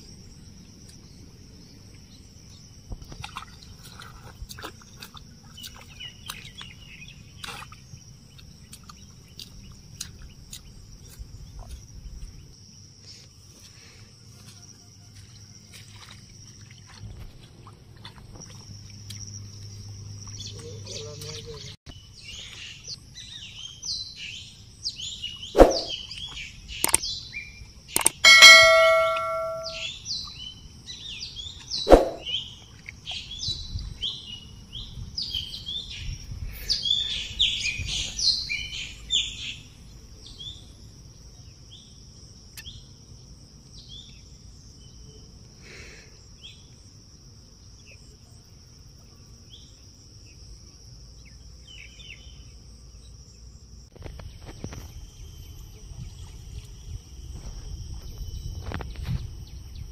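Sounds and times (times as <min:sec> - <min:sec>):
birds chirping: 0:24.3 - 0:30.0
metallic clang ringing: 0:28.0 - 0:29.8
sharp knocks: 0:28.0 - 0:29.8
high-pitched drone: 0:28.1 - 0:29.8.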